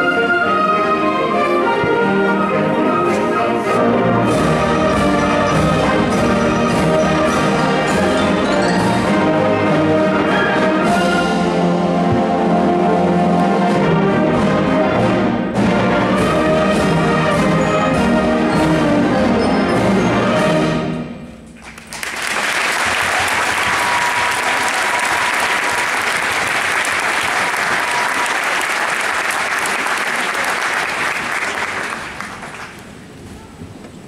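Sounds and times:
concert band playing: 0.0 - 21.6
audience applause: 21.6 - 33.0.

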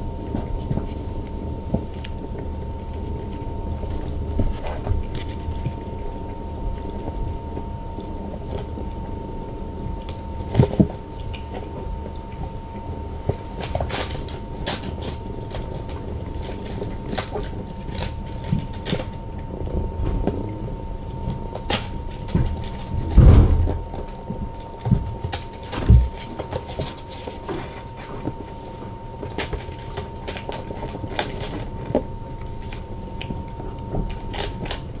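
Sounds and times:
steady background hum: 0.0 - 35.0
thin constant whine: 0.0 - 35.0
loud thump: 23.2 - 23.8.

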